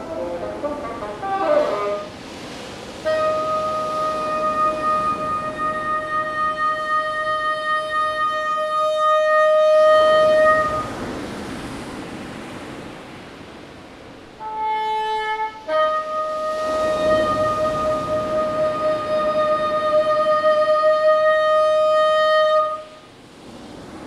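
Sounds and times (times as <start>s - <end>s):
bassoon notes: 0.0s - 2.2s, 3.1s - 10.9s, 14.4s - 22.9s
surf washing on shore: 0.0s - 24.0s.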